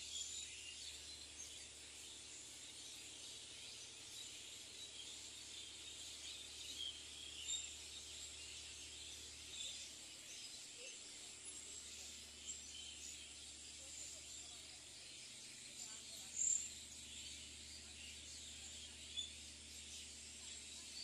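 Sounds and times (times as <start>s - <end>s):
bird chirps: 0.0s - 21.0s.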